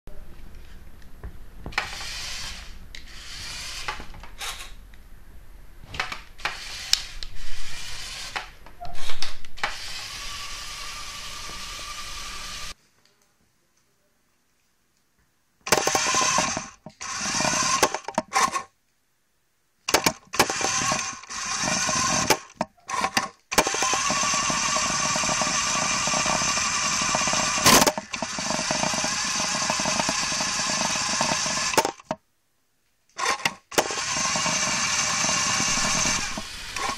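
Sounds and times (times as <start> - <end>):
toy electric motor whining: 1.8 - 4.8, 6.4 - 12.8, 15.7 - 18.7, 19.9 - 32.2, 33.2 - 36.9.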